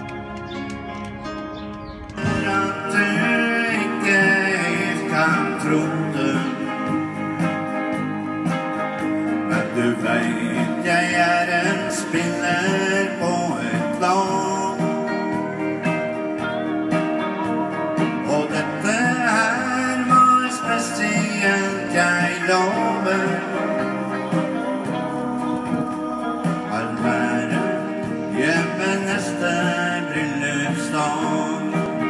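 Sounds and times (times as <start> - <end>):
country song over speaker: 0.0 - 32.0
guitar: 0.0 - 32.0
man singing: 2.2 - 8.3, 8.9 - 16.4, 17.1 - 32.0.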